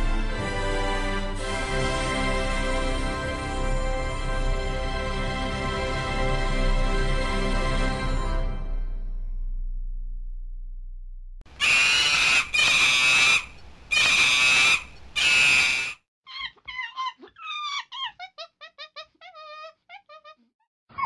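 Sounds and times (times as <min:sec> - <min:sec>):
harsh screeches: 0:11.5 - 0:18.1
high squeaky chirps: 0:11.5 - 0:20.4.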